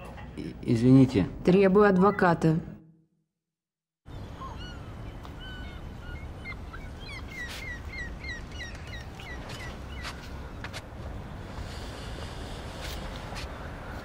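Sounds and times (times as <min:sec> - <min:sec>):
birds chirping: 0:04.1 - 0:12.8
low outdoor rumble: 0:04.1 - 0:14.0.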